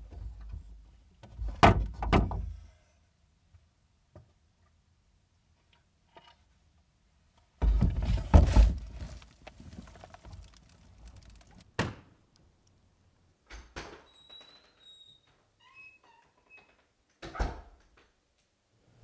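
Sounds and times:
rumbling bumps and rustling: 7.6 - 11.6.

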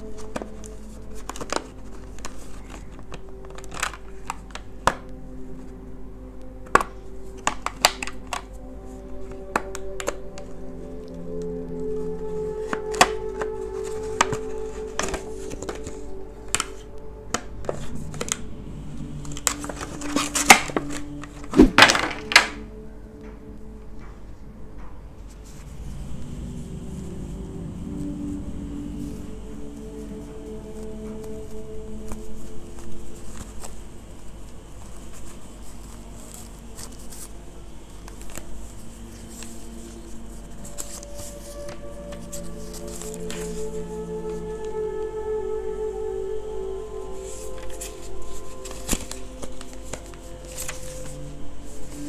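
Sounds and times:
plastic packaging crinkling: 0.0 - 5.2
packaging rustling: 0.0 - 5.8, 6.6 - 22.6, 47.1 - 52.0.

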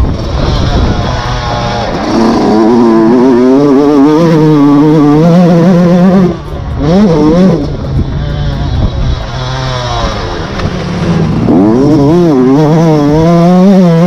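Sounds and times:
two-stroke motocross engine revving: 0.0 - 14.0.

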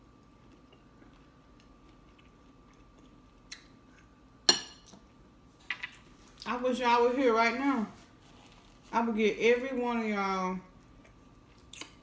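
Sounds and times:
soft chewing: 0.0 - 6.5, 10.7 - 12.0.

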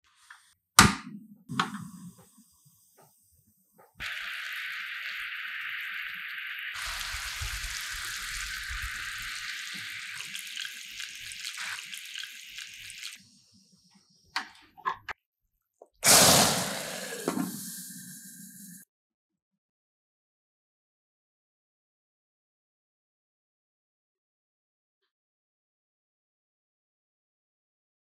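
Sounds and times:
loud sudden sizzle: 4.0 - 13.2, 16.0 - 18.8
syrup boiling with a hiss: 4.0 - 13.8, 16.0 - 18.8.

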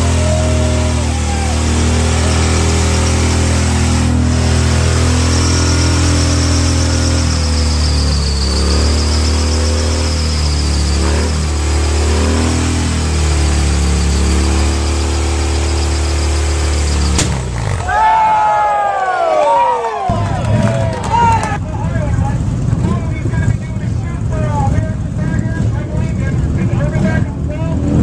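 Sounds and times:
motorcycle engine revving: 0.0 - 18.1
tire squealing: 0.0 - 28.0.

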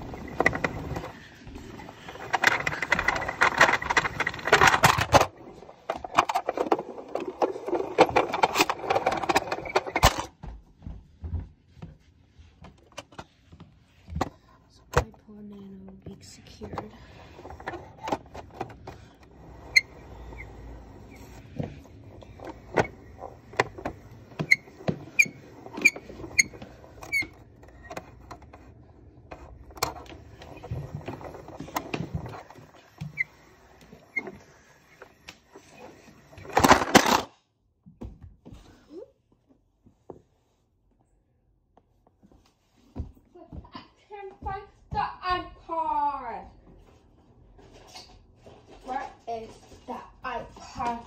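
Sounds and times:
plastic objects clicking and knocking: 1.9 - 10.3, 16.0 - 20.5, 21.2 - 37.4.

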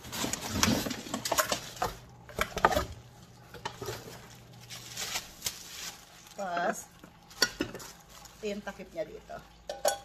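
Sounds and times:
plastic wrap crinkling: 0.0 - 9.5.

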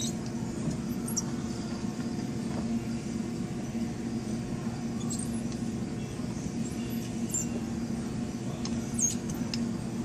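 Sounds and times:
low steady hum: 0.0 - 10.0
short high squeaks: 6.7 - 7.6, 9.0 - 9.4.

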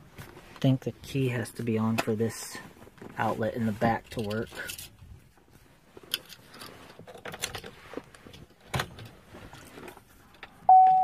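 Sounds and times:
sharp clicks and rustles: 1.8 - 10.7
dashboard warning chime: 10.7 - 11.0.

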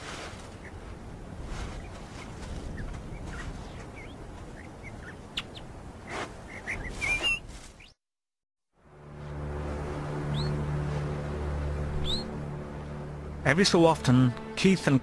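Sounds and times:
digging in sandy soil: 0.0 - 4.2, 6.0 - 7.9
animal cub squeaking and chirping: 2.8 - 7.9.

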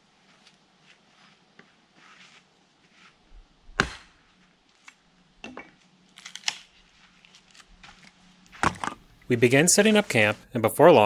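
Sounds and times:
hatchet chopping wood: 3.8 - 4.2.

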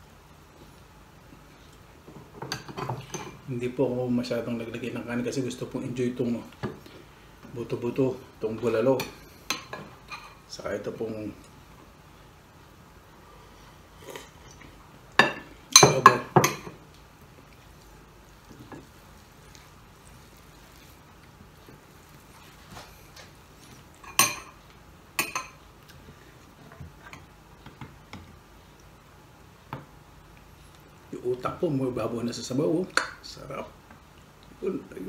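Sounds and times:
tableware clinking on a plate: 15.2 - 16.8, 24.0 - 24.6.

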